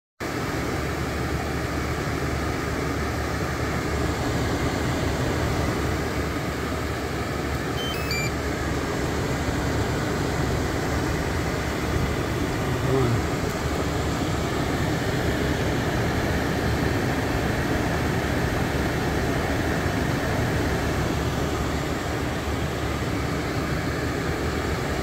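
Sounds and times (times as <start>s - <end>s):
control panel beeps: 7.8s - 8.4s.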